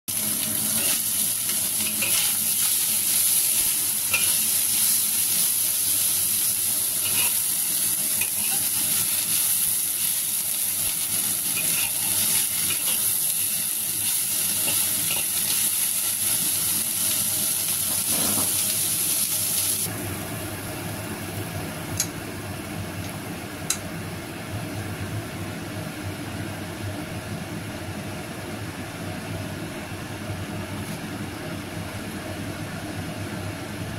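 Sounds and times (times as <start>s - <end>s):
food sizzling in a wok: 0.1s - 21.5s
spatula scraping a pan: 7.0s - 7.5s.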